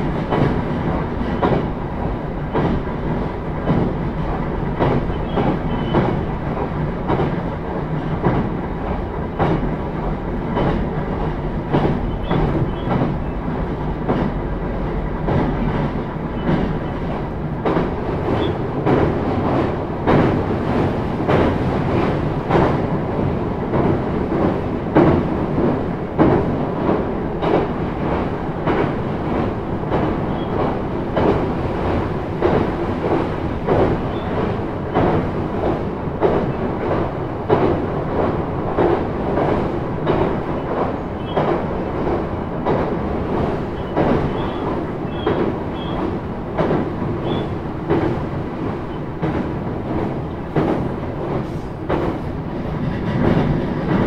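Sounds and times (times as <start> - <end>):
train wheels rumbling on rails: 0.0 - 54.0
knocks from the track: 10.5 - 13.2, 17.6 - 20.5, 23.7 - 27.8, 29.9 - 43.0, 43.8 - 48.3, 49.2 - 54.0.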